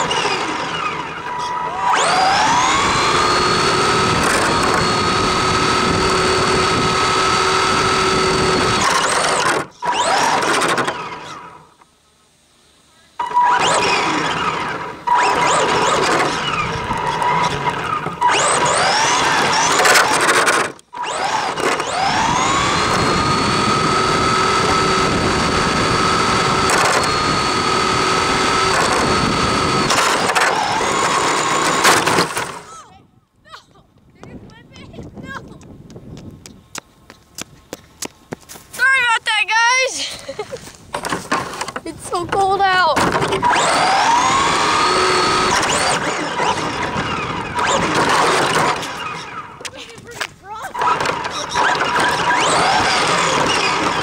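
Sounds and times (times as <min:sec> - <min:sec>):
rc car motor whining: 0:00.0 - 0:11.7, 0:13.2 - 0:33.0, 0:41.0 - 0:54.0
tyre noise on asphalt: 0:35.6 - 0:39.2.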